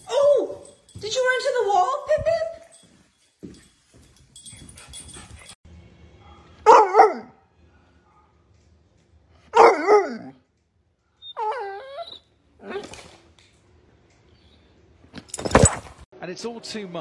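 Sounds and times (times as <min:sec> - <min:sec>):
dog barking and howling: 0:06.6 - 0:07.4, 0:09.5 - 0:10.4.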